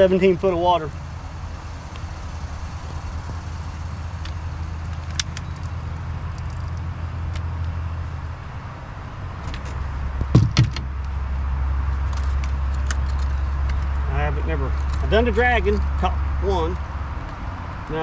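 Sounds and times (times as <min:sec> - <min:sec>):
low motor hum: 0:00.0 - 0:18.0
sharp knocks: 0:09.5 - 0:11.0.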